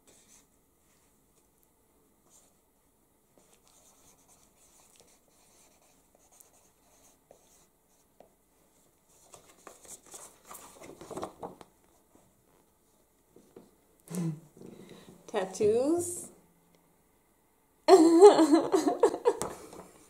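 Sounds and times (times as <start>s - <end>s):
marker scratching on paper: 3.4s - 8.1s
paper rustling: 9.1s - 12.3s.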